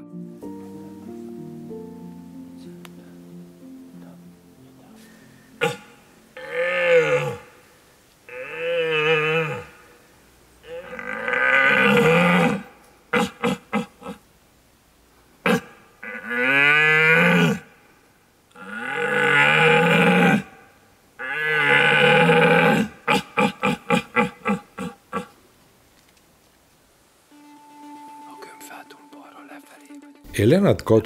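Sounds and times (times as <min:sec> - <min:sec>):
deer call roars: 0:05.6 - 0:07.7, 0:08.3 - 0:10.0, 0:10.6 - 0:14.2, 0:15.4 - 0:17.7, 0:18.5 - 0:25.4.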